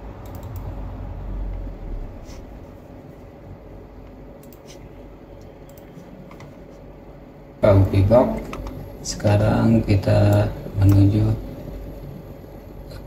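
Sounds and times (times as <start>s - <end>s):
low background rumble: 0.0s - 5.8s.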